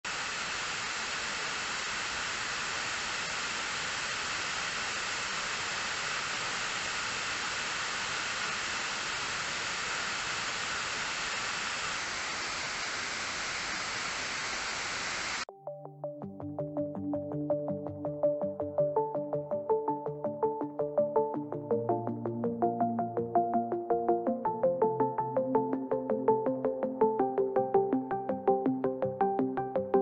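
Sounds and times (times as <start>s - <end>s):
music: 15.5s - 30.0s.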